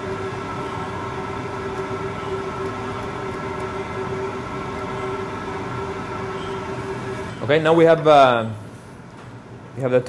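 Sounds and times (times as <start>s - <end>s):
convection oven fan humming: 0.0s - 10.0s.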